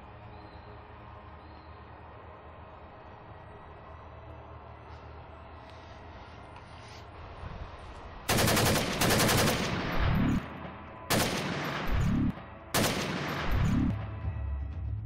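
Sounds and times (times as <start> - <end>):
automatic gunfire bursts: 8.3 - 10.5, 11.1 - 14.0.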